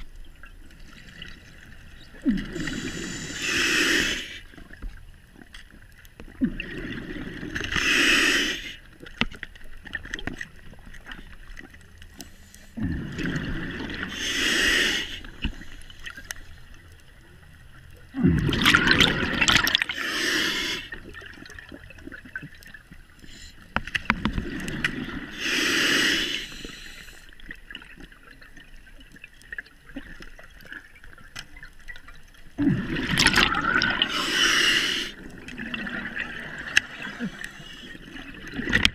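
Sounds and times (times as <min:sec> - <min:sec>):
exhaled bubbles rumbling: 0:00.0 - 0:03.4, 0:06.2 - 0:07.8, 0:12.8 - 0:14.2, 0:17.6 - 0:20.0, 0:24.0 - 0:25.4, 0:27.4 - 0:38.9
regulator air hiss: 0:02.6 - 0:04.4, 0:07.7 - 0:08.8, 0:14.1 - 0:16.0, 0:20.0 - 0:21.0, 0:25.3 - 0:27.3, 0:34.1 - 0:35.2.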